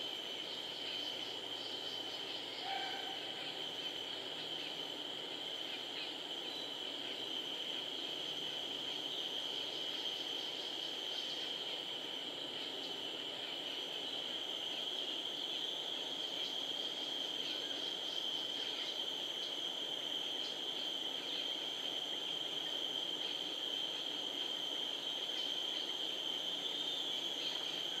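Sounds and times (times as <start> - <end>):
forest background hiss: 0.0 - 28.0
insects droning: 0.0 - 28.0.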